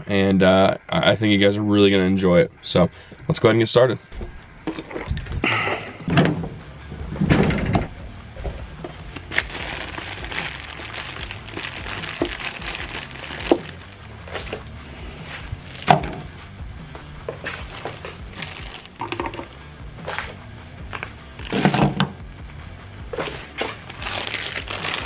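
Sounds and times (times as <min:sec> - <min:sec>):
plastic bag rustling: 0:08.8 - 0:16.3, 0:17.3 - 0:19.5, 0:23.1 - 0:25.0.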